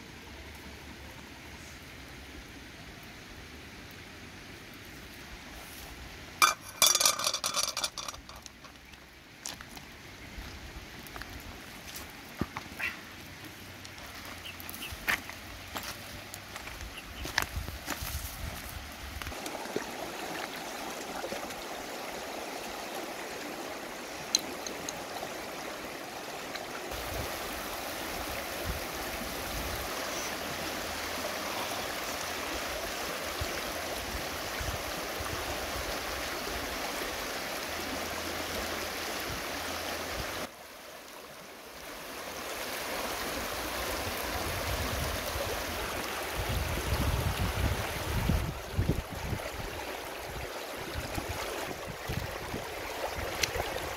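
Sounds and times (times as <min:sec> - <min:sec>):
river water running over rocks: 0:00.0 - 0:53.9.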